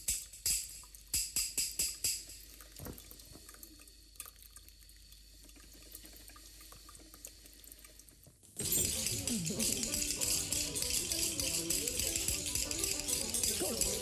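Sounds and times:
small ticks and drips: 0.0s - 8.6s
coffee trickling into a carafe: 2.2s - 14.0s.

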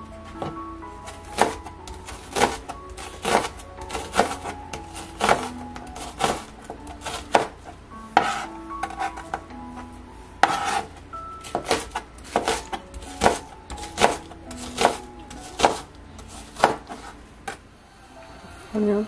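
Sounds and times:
potato grated on box grater: 2.2s - 6.4s.

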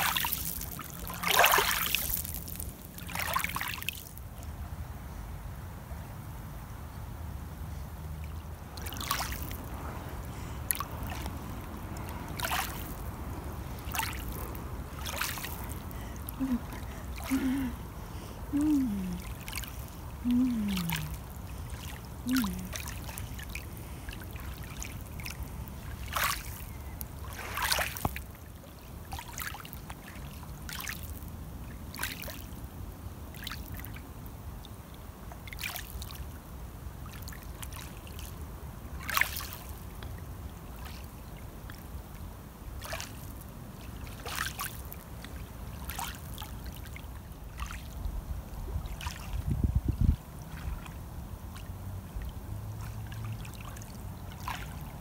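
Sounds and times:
lake water lapping: 0.0s - 4.2s, 8.2s - 32.6s, 35.4s - 36.3s, 37.0s - 41.9s, 42.6s - 55.0s
person humming: 16.3s - 17.8s, 18.5s - 19.4s, 20.2s - 21.3s, 22.2s - 22.8s
wind on microphone: 48.0s - 51.0s.

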